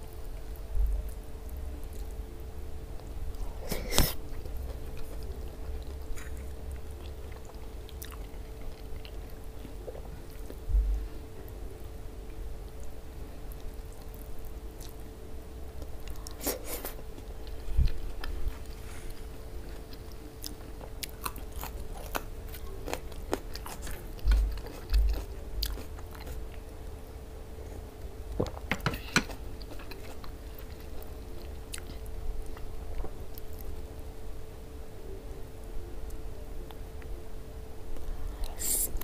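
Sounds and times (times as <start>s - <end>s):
faint steady hum: 0.0s - 39.0s
close chewing and mouth sounds: 2.9s - 10.7s, 12.6s - 15.1s, 15.7s - 26.9s, 28.3s - 33.8s.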